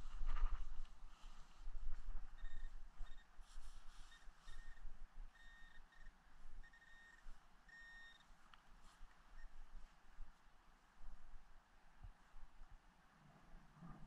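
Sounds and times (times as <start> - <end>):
metal detector pinpointer beeping: 2.4 - 3.4, 4.0 - 8.2.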